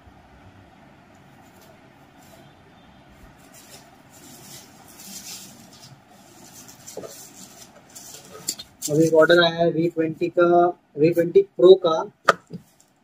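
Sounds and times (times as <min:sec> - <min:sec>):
plastic bag rustling: 0:03.2 - 0:09.4.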